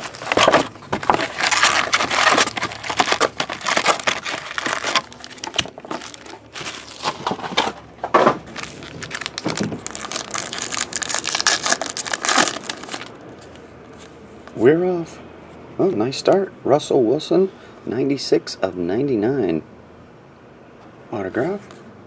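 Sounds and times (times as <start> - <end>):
foil packs crinkling: 0.0 - 13.1.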